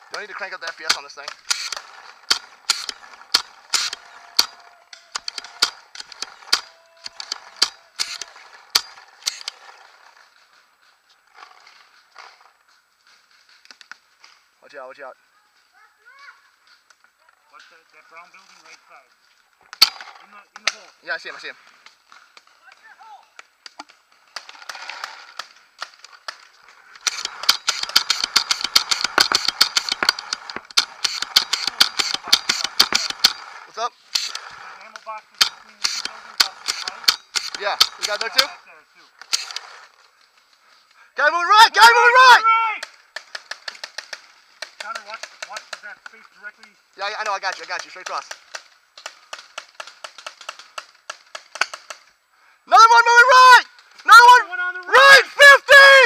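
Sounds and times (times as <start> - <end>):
paintball markers firing: 0.1 - 9.6, 27.0 - 38.6, 39.2 - 39.8, 42.8 - 52.1.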